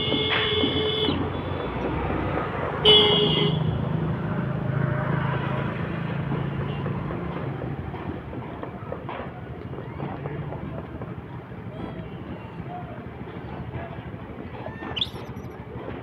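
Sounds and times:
vehicle horn toot: 0:00.0 - 0:01.5, 0:02.8 - 0:03.8
road traffic rumble: 0:00.0 - 0:16.0.

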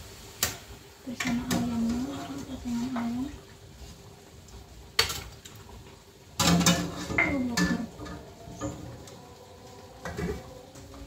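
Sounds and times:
metal ladle clinking on pot: 0:06.4 - 0:08.8.

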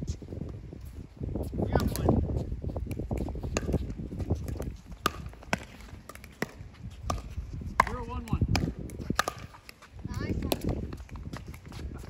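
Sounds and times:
wind rumble on microphone: 0:00.0 - 0:12.0
ball bouncing on court: 0:01.7 - 0:02.2, 0:02.8 - 0:12.0.

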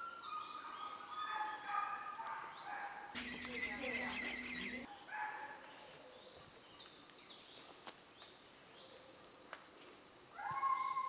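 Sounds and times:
downward-sweeping bird calls: 0:03.2 - 0:04.9
high insect drone: 0:03.2 - 0:04.9.

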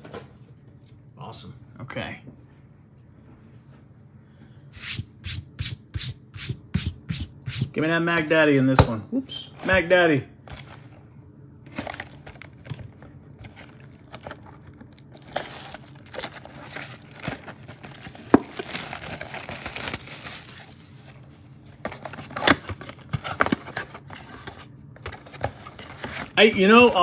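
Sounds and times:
plastic wrapping crinkling and tearing: 0:13.4 - 0:21.1.

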